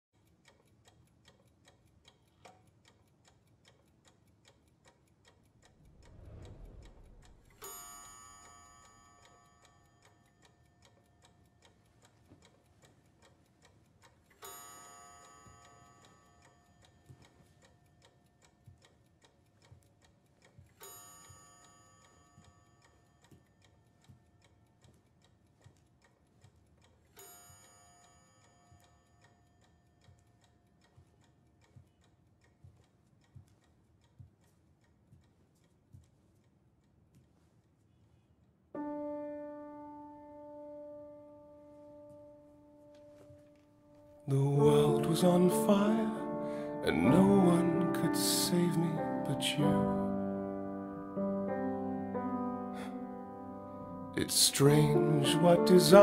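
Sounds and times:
faint clock ticking: 0.1s - 56.0s
low swell: 5.7s - 7.7s.

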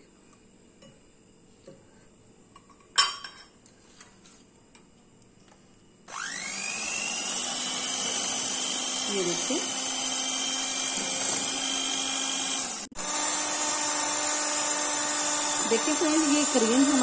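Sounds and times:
electric hand mixer whirring: 6.1s - 17.0s.

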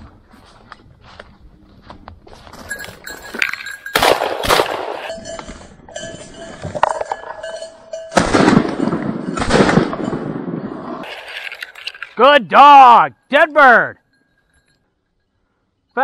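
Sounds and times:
shotgun shots: 3.9s - 5.1s, 8.2s - 11.2s.

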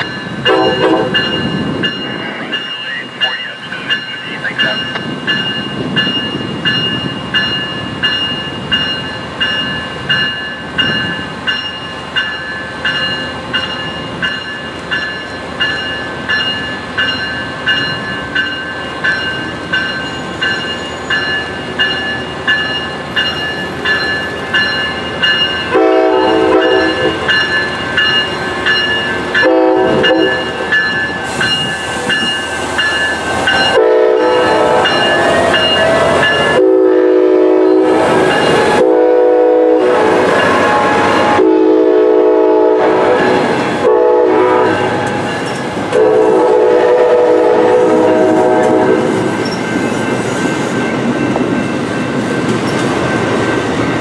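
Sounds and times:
locomotive bell ringing: 0.0s - 39.0s, 39.7s - 41.4s, 42.8s - 54.0s
locomotive horn blasts: 0.5s - 1.4s, 25.7s - 27.2s, 29.4s - 30.5s, 33.7s - 45.2s, 45.9s - 49.2s.

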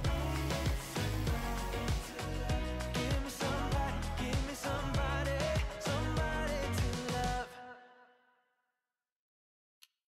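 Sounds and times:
instrumental pop music: 0.0s - 7.8s.

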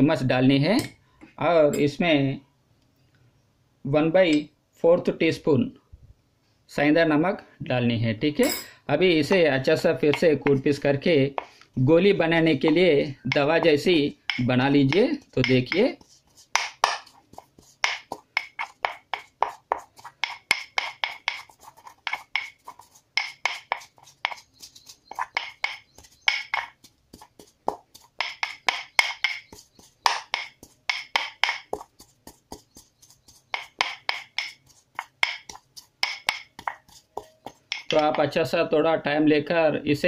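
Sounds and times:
pestle pounding in a mortar: 9.2s - 10.6s, 12.5s - 38.3s.

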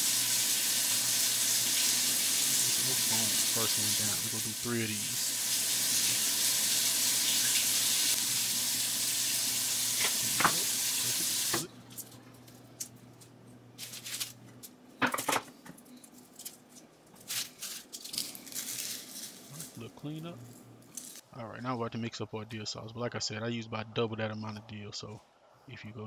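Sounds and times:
steady hiss with low hum: 0.0s - 26.0s.

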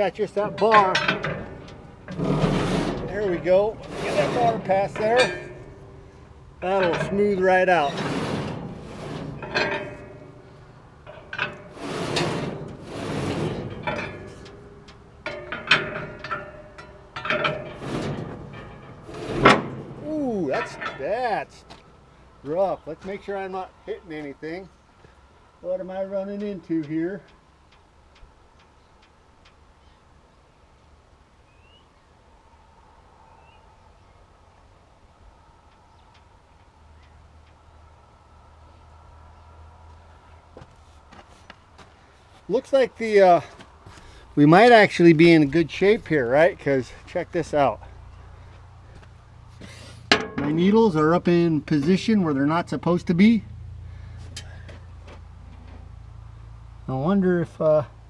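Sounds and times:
metal scraping and rubbing: 0.0s - 21.8s
low wind rumble: 0.0s - 25.7s
short metal clanks: 0.2s - 21.8s, 49.6s - 51.1s
small bird chirping: 31.5s - 32.0s.

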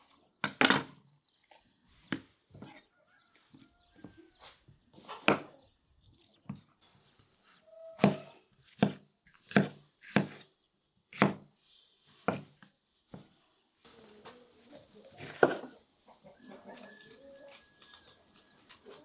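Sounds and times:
knife slicing pepper: 8.0s - 10.5s.

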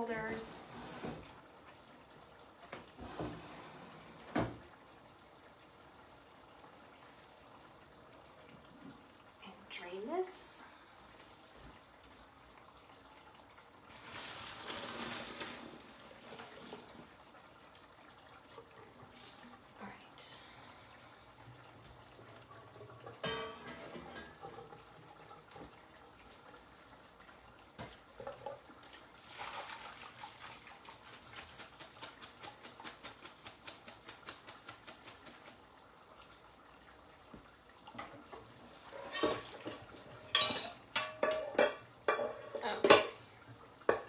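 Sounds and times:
water running: 0.0s - 44.0s
metal pans clattering: 23.0s - 24.8s, 38.9s - 43.2s
pots and pans handled: 23.2s - 24.6s, 38.9s - 43.2s.

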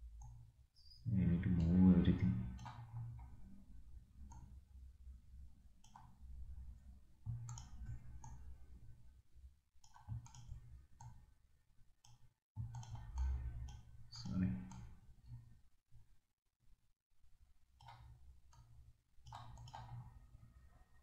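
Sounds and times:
computer mouse clicks: 2.4s - 3.4s, 4.3s - 4.6s, 5.8s - 6.2s, 7.3s - 8.6s, 9.8s - 11.3s, 12.0s - 15.5s, 17.8s - 20.3s.

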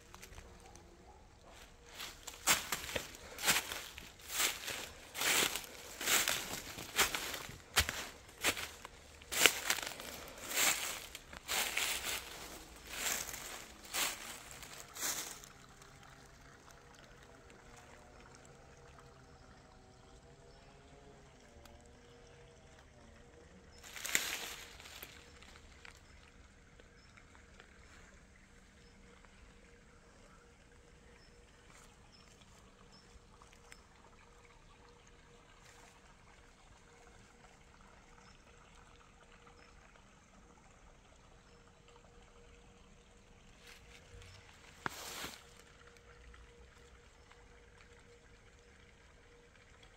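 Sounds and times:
low steady hiss: 0.0s - 49.9s
stream trickling and gurgling: 0.0s - 49.9s
footsteps crunching in dry leaves: 1.5s - 15.8s, 23.8s - 26.0s, 43.7s - 45.6s.

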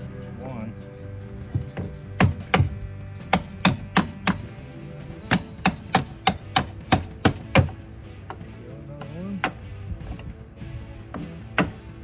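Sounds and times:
hammer striking metal: 1.6s - 4.5s, 5.3s - 8.4s.

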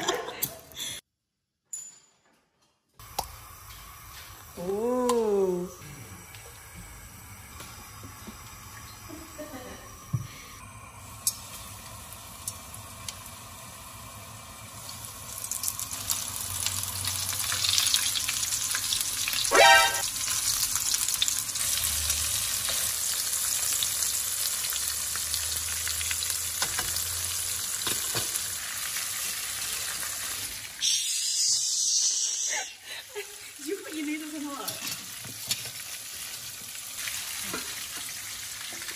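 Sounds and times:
food sizzling in hot oil: 3.0s - 38.9s
brief pitched sound: 19.5s - 20.0s.

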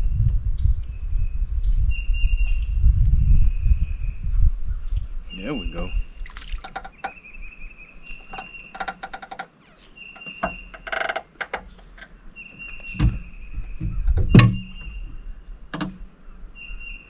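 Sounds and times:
dense rattle: 8.2s - 9.5s, 10.2s - 16.1s.

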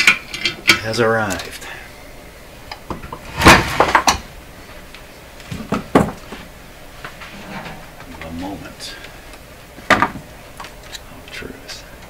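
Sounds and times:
objects clattering on wooden workbench: 2.9s - 4.2s, 5.5s - 6.4s, 7.1s - 8.3s, 9.9s - 10.3s.

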